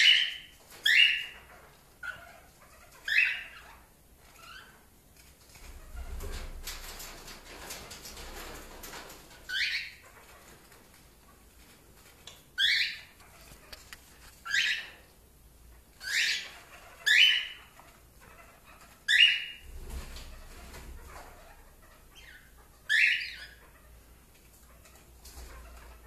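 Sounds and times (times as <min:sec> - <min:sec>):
cockatiel calling: 0:00.0 - 0:03.8, 0:12.6 - 0:15.0, 0:16.0 - 0:19.6, 0:21.0 - 0:24.0.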